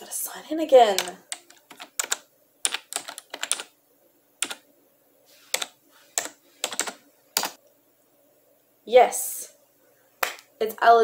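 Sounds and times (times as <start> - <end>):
typing on computer keyboard: 1.0 - 3.7, 4.4 - 4.6, 5.6 - 7.6.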